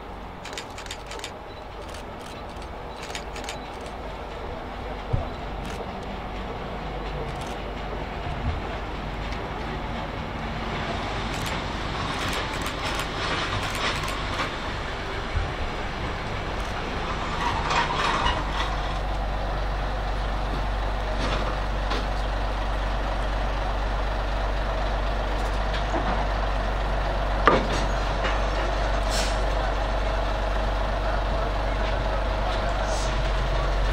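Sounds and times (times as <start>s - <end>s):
diesel engine running: 0.0s - 33.9s
squeals and clicks: 0.4s - 4.0s.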